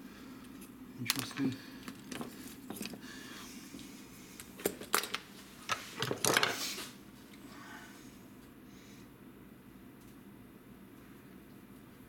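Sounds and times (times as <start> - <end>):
metal parts clattering on workbench: 4.6 - 5.2, 6.0 - 6.6.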